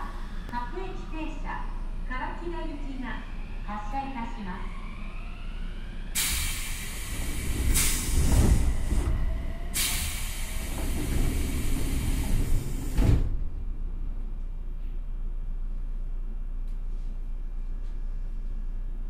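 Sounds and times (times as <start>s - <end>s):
loud compressed-air hiss: 6.2s - 8.8s, 9.7s - 13.0s.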